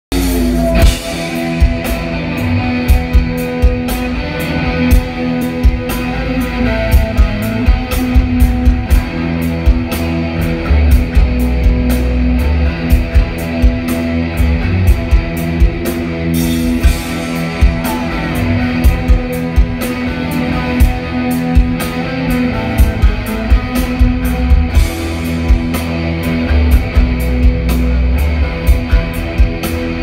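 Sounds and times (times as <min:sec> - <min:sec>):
bass guitar: 0:00.0 - 0:30.0
drum kit hits: 0:00.1 - 0:04.2
electric guitar chords: 0:00.1 - 0:30.0.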